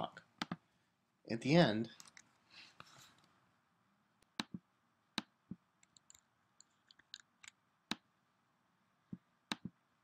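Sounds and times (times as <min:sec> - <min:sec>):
computer mouse clicks: 0:00.4 - 0:00.6, 0:05.2 - 0:08.0, 0:09.1 - 0:09.8.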